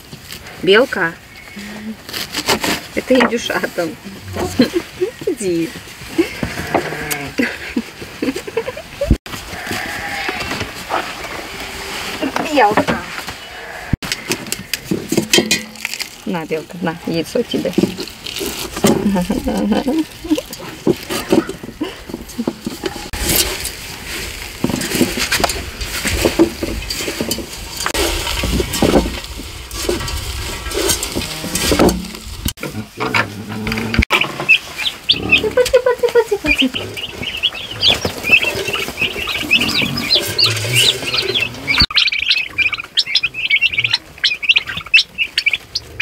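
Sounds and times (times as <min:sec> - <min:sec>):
turkey poults peeping: 0:33.8 - 0:46.0.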